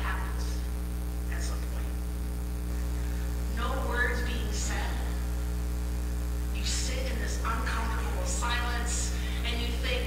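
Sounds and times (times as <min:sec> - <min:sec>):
woman speaking: 0:00.0 - 0:00.7, 0:01.3 - 0:02.0, 0:03.5 - 0:05.4, 0:06.6 - 0:10.0
electrical mains hum: 0:00.0 - 0:10.0.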